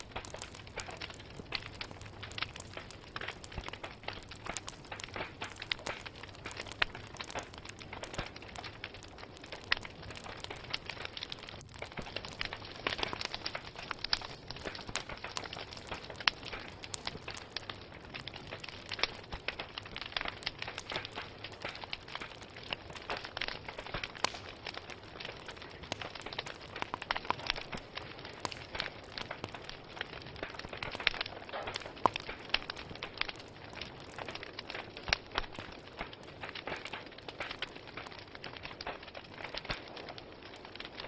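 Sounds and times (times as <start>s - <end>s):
sharp pops from burning logs: 0.0s - 41.0s
wood fire crackling: 0.0s - 41.0s.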